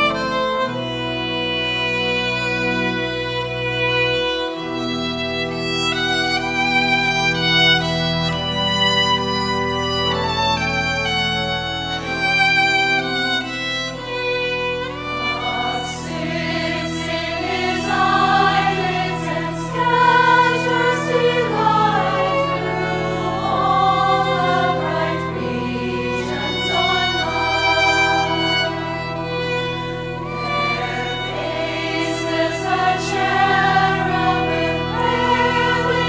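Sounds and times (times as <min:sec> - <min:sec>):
pipe organ: 0:00.0 - 0:36.0
solo violin: 0:00.0 - 0:36.0
women's choir singing a hymn: 0:12.0 - 0:36.0.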